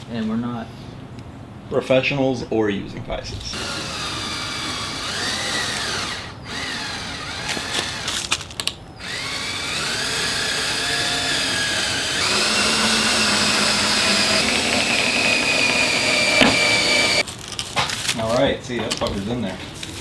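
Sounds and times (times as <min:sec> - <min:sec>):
cordless drill motor: 0:03.5 - 0:08.4, 0:09.0 - 0:17.2
knocks on wood: 0:15.0 - 0:16.9.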